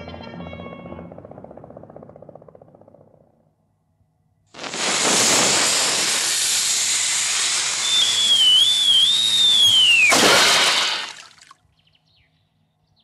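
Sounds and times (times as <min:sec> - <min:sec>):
fuse hissing: 0:04.6 - 0:11.2
falling whistle: 0:07.4 - 0:11.0
loud splash in water: 0:10.0 - 0:11.5.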